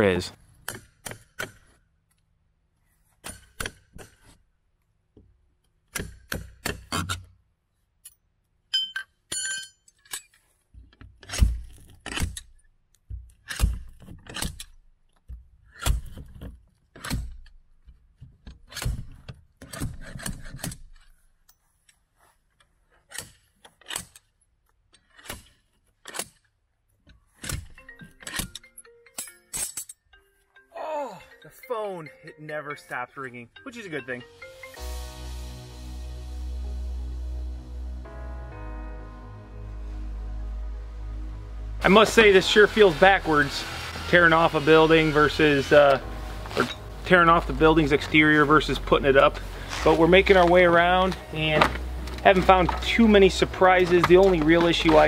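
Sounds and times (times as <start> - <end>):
metallic clinks taps and scrapes: 8.0 - 13.3, 19.7 - 30.3.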